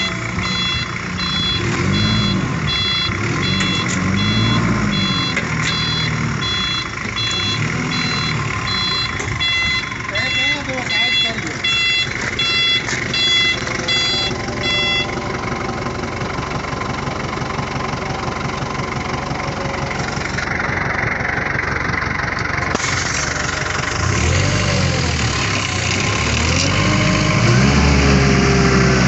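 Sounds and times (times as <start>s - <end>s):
warning beeper: 0.0s - 15.4s
forklift engine running: 0.0s - 29.0s.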